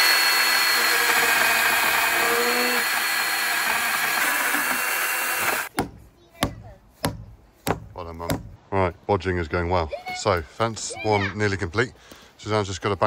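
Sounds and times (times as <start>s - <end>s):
chainsaw cutting wood: 0.0s - 5.7s
hammer knocks: 5.7s - 8.6s.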